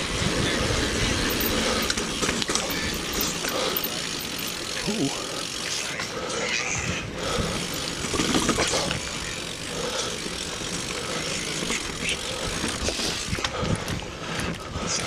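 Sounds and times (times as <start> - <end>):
bike tyres on dirt trail: 0.0 - 15.0
bike knocks and rattles: 7.6 - 9.7.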